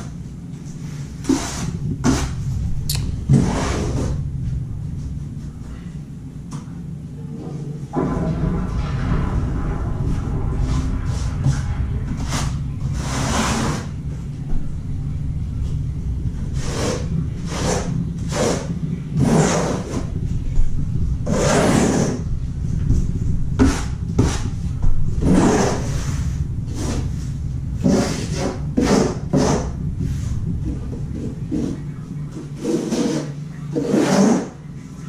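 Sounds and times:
steady low hum: 0.0s - 35.0s
trowel scraping mortar: 1.2s - 2.3s, 32.6s - 34.5s.

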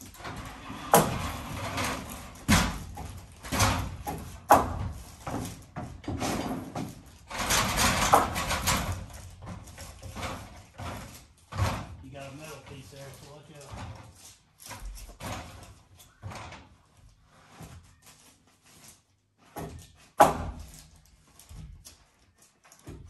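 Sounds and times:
insulation rustling: 0.0s - 20.0s
irregular knocks and thuds: 0.2s - 12.1s.

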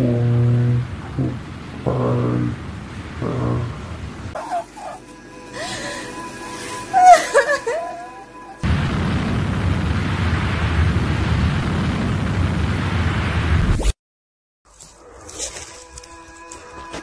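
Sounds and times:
loud rumbling noise: 0.0s - 4.4s, 8.6s - 13.8s.

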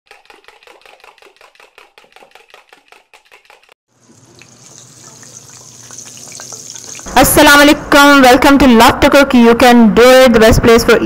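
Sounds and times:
food sizzling in a pan: 3.9s - 7.1s.

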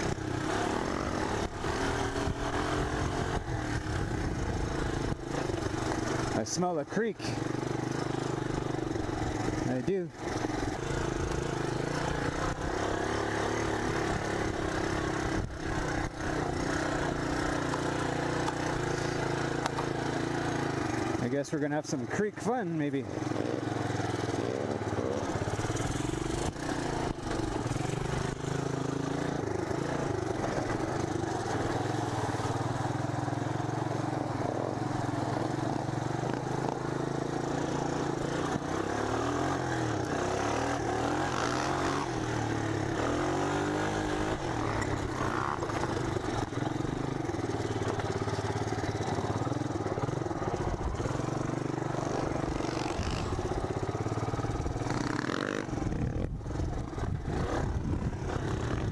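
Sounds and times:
three-wheeler engine running: 0.0s - 58.9s.

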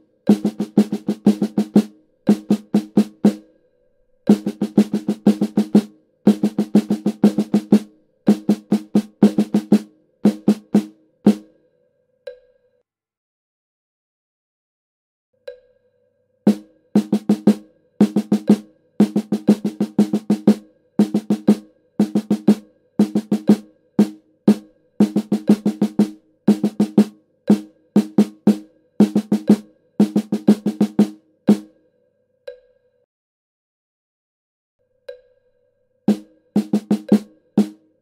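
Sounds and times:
snare drum strokes: 0.3s - 3.4s, 4.3s - 11.4s, 16.5s - 31.7s, 36.1s - 37.8s.

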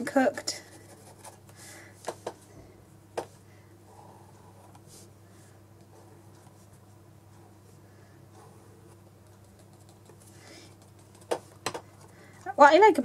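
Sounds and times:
low steady hum: 0.0s - 13.0s
pen tapping on paper: 9.2s - 12.0s.

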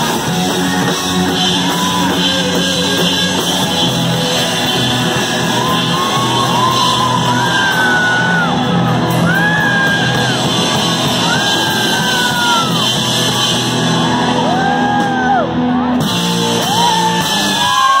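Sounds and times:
punk rock band playing live: 0.0s - 18.0s.

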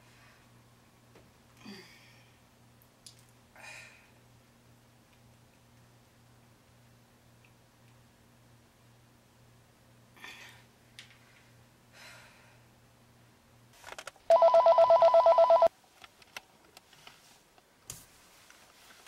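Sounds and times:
mobile phone ringing: 14.3s - 15.7s.

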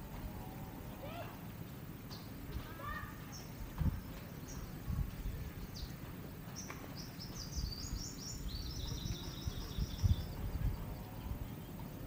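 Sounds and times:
wind on microphone: 3.6s - 5.9s, 7.5s - 12.0s.

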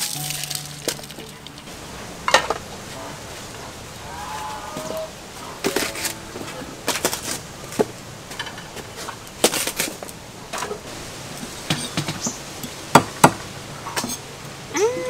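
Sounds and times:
kitchenware clinking and knocking: 0.1s - 2.7s, 11.6s - 12.3s.

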